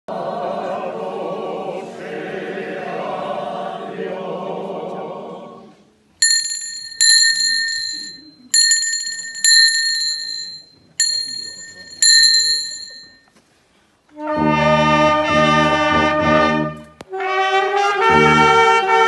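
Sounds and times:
group singing a hymn: 0:00.1 - 0:05.9
handbell ringing: 0:06.2 - 0:13.2
brass accompaniment: 0:14.2 - 0:19.0.

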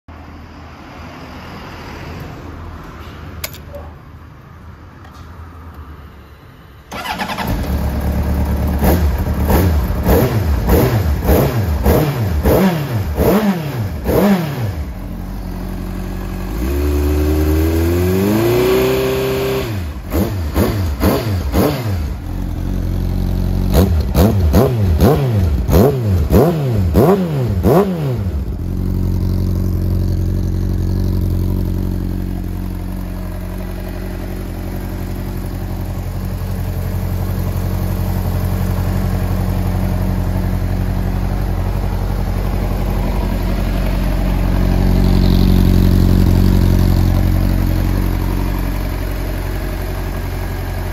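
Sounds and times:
motorcycle engine idling: 0:06.9 - 0:14.1, 0:14.8 - 0:18.0, 0:19.9 - 0:26.3, 0:27.7 - 0:50.9
motorcycle engine revving: 0:06.9 - 0:50.9.

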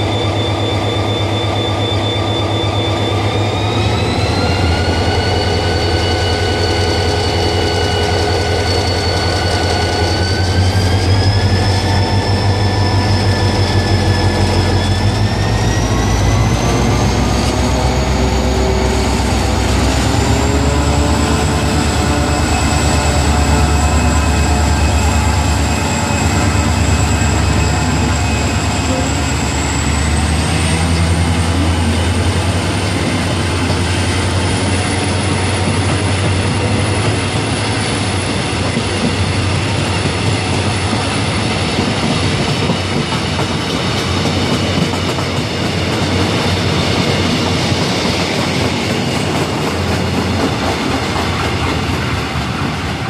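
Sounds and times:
locomotive whine climbing: 0:00.0 - 0:53.0
locomotive engine rumble: 0:03.0 - 0:43.4.

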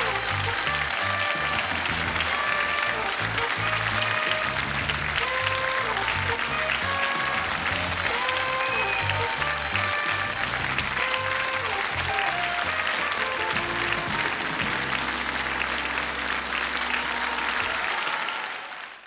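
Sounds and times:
sitcom theme music: 0:00.0 - 0:18.0
studio audience applause: 0:00.0 - 0:19.0.

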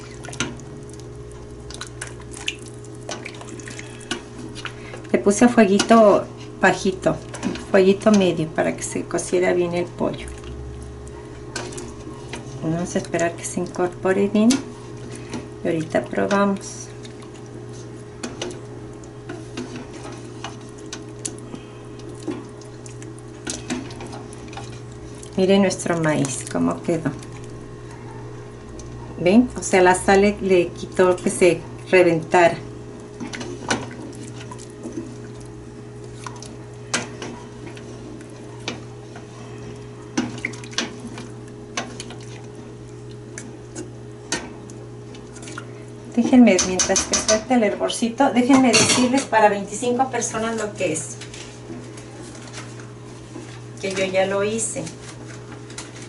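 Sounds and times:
steady low hum: 0:00.0 - 0:56.0
spoon stirring broth: 0:10.1 - 0:29.0.

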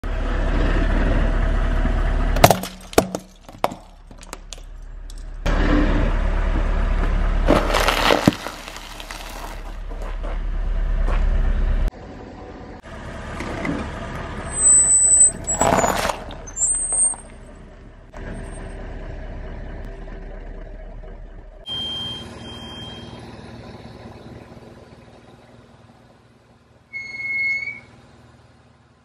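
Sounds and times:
car running low: 0:00.0 - 0:29.0
plastic bricks cracking under tyre: 0:02.4 - 0:05.2, 0:07.5 - 0:10.1, 0:15.5 - 0:16.5
tyre crushing crunchy cereal: 0:07.5 - 0:10.0, 0:15.6 - 0:16.4.

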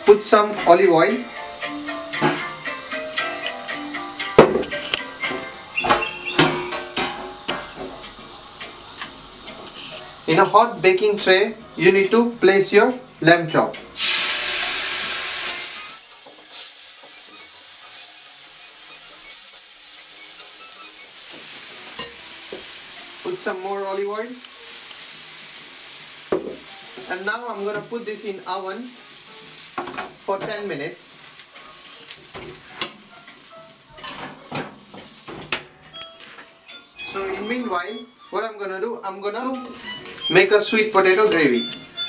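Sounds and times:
meat sizzling in hot oil: 0:14.0 - 0:35.6.

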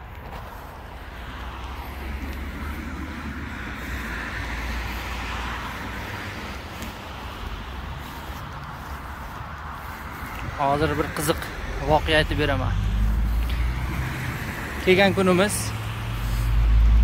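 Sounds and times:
low traffic rumble: 0:00.0 - 0:17.0
passing cars and lorries: 0:00.0 - 0:17.0.

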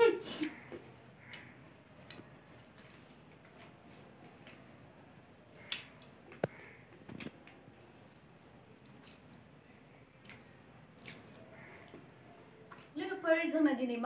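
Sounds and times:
chewing: 0:00.5 - 0:04.8.

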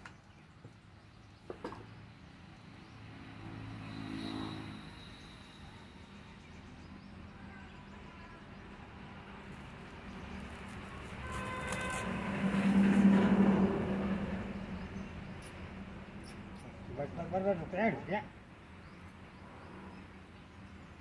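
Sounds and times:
faint engine-like hum: 0:01.8 - 0:17.7
vehicle engine passing by: 0:02.5 - 0:07.2, 0:10.0 - 0:17.2.

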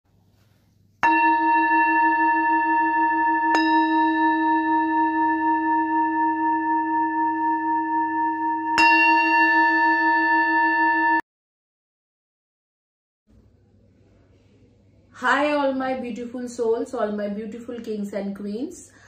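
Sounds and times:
singing bowl ringing: 0:01.0 - 0:11.2.

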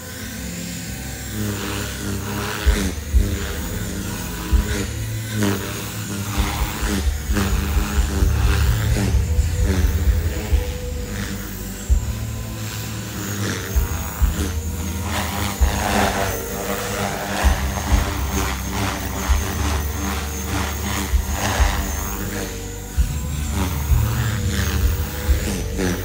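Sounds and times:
helicopter rotor whine: 0:00.0 - 0:26.0
low thumps and rumbles: 0:06.2 - 0:26.0.

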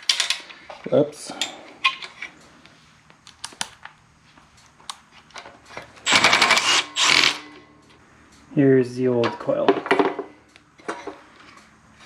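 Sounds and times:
power driver whirring: 0:06.1 - 0:07.6.

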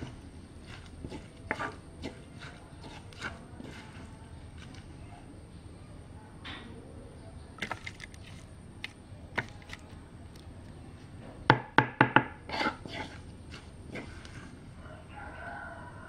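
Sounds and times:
sharp knocks: 0:11.5 - 0:12.4.

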